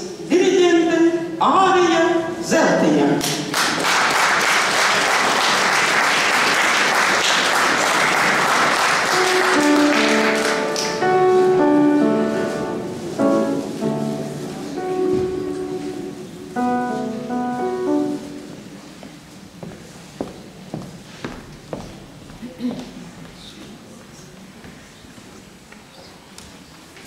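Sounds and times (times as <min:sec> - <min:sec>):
audience applauding: 0:03.5 - 0:11.1
piano notes: 0:08.2 - 0:19.6.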